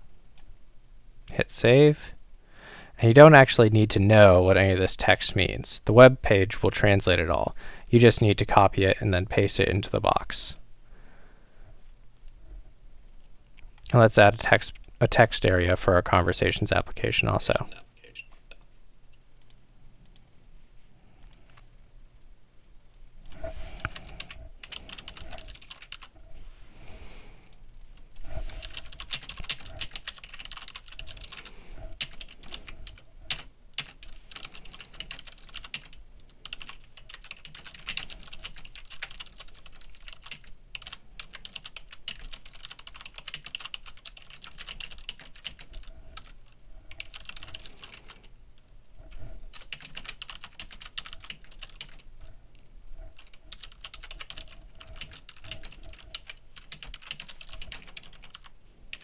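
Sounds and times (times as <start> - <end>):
computer keyboard typing: 23.8 - 26.1, 27.4 - 48.2, 49.5 - 52.0, 53.2 - 59.0.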